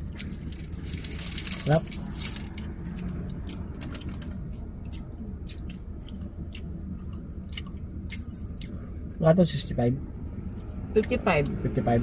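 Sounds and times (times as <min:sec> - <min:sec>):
people chewing food: 0:00.0 - 0:09.0
car cabin hum: 0:00.0 - 0:12.0.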